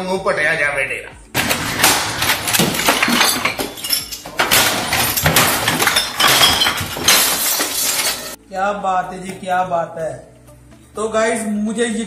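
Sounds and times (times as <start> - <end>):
glass breaking: 1.4 - 8.4
objects crashing and clattering: 1.4 - 8.4.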